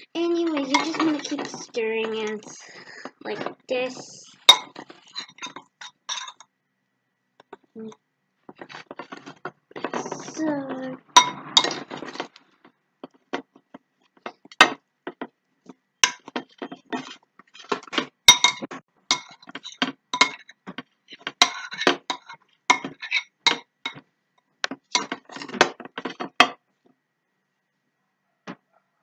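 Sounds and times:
metal spoon clinking on glass bowl: 4.5s - 6.5s, 18.3s - 20.5s.

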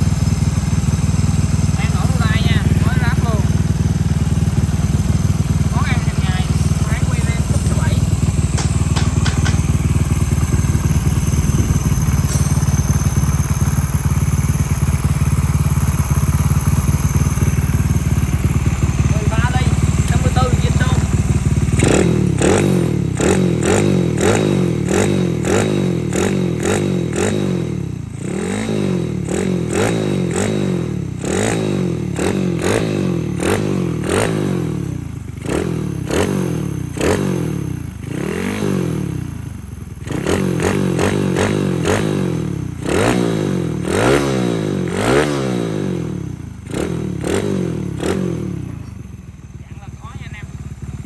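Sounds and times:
motorcycle engine revving: 0.0s - 51.0s.

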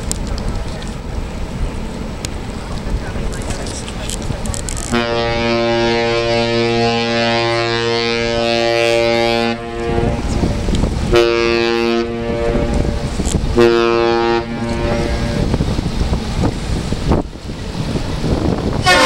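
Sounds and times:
ship's horn blasts: 4.8s - 16.4s, 18.6s - 19.0s.

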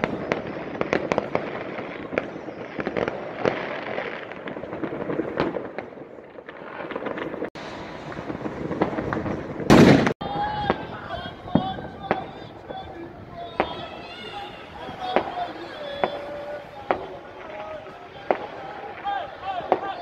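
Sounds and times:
loud firework bang: 0.0s - 12.9s
fireworks crackling and banging: 0.0s - 20.0s.

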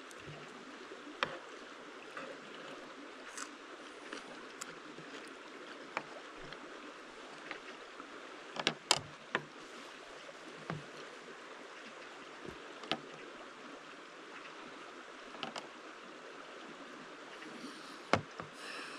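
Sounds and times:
stream flowing: 0.0s - 18.9s.

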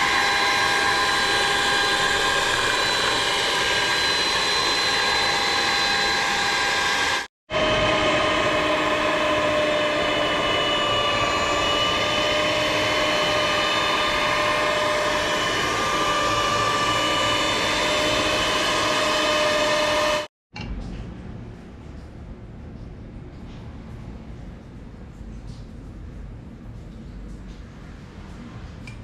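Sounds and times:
electric mixer whirring: 0.0s - 20.3s.

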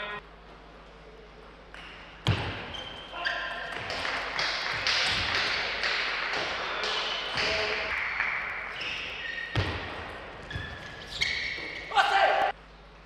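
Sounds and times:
shoe soles squeaking on floor: 1.8s - 3.9s, 7.0s - 12.1s.

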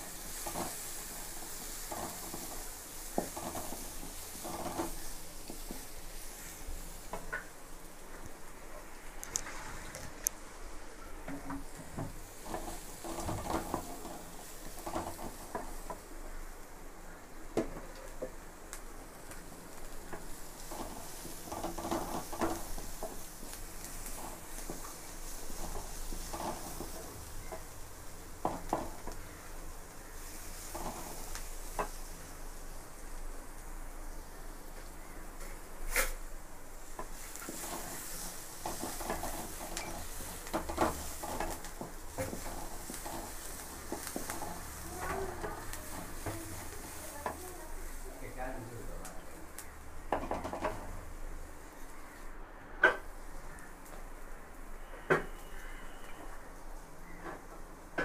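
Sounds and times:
wooden spatula scraping a pot: 0.0s - 7.5s, 11.4s - 16.3s, 19.4s - 32.4s, 36.9s - 48.4s
onions sizzling in oil: 0.0s - 58.0s.

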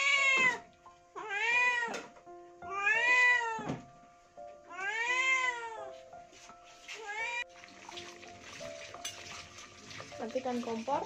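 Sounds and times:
cat meowing: 0.0s - 3.8s, 4.7s - 5.9s, 7.0s - 7.5s.

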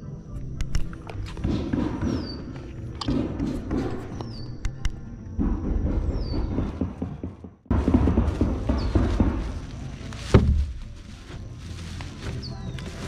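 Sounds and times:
bird chirping: 0.5s - 5.0s, 8.7s - 10.1s, 12.0s - 13.0s
microphone handling knocks: 5.4s - 11.0s.

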